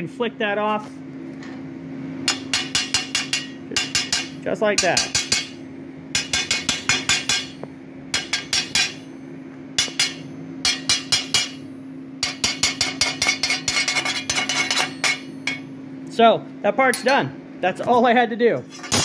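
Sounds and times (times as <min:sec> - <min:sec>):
steady low hum: 0:00.0 - 0:19.0
sharp metal-on-metal tapping: 0:02.2 - 0:09.0, 0:09.8 - 0:11.6, 0:12.2 - 0:15.7.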